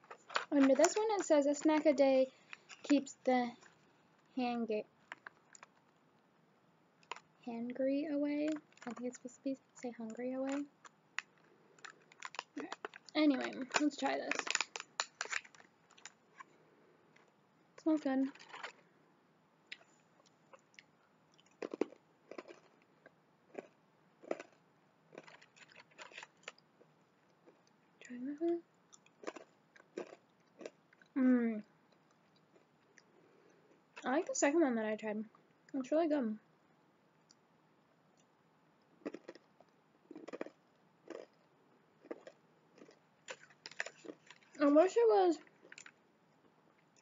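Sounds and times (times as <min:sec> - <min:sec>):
crunchy chewing: 0:10.1 - 0:16.6, 0:19.7 - 0:27.8, 0:28.9 - 0:31.2, 0:39.0 - 0:44.6.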